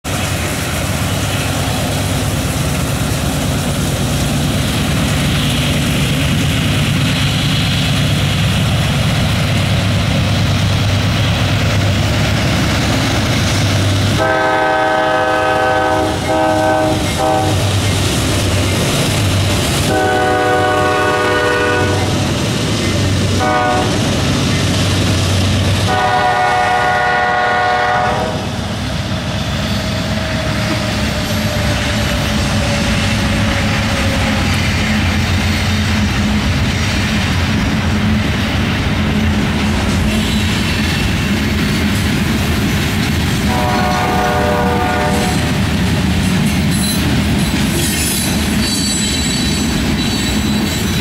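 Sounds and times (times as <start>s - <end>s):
diesel locomotive engine rumble: 0.0s - 51.0s
train wheel noise: 0.0s - 51.0s
train air horn blasts: 14.2s - 17.8s, 19.8s - 22.2s, 23.4s - 24.1s, 25.8s - 28.6s, 43.5s - 45.6s.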